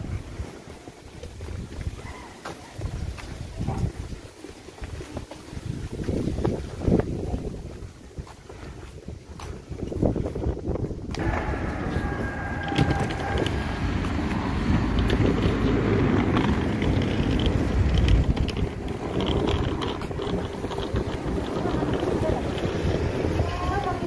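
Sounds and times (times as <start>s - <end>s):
street ambience: 0.0s - 24.0s
wind buffeting microphone: 0.0s - 24.0s.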